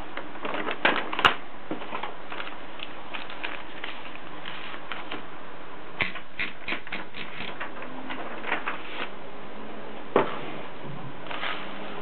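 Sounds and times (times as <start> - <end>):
manual typewriter clacking: 6.0 - 9.1.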